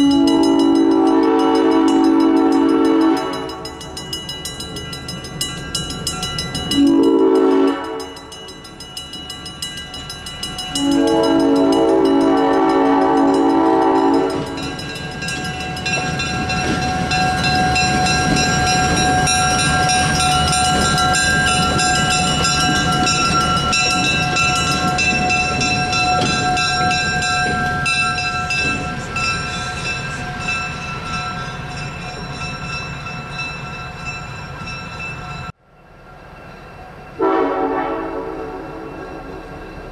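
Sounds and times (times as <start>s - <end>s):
locomotive air horn blasts: 0.0s - 3.8s, 6.8s - 8.2s, 10.8s - 14.7s, 37.2s - 38.9s
wheels on rails: 0.0s - 37.2s
diesel locomotive engine: 0.0s - 39.9s.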